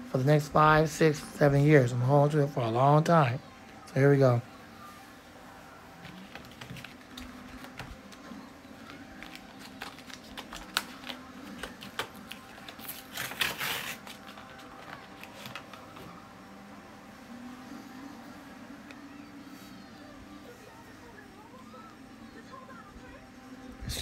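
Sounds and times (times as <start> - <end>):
packaging rustling: 8.8 - 16.0.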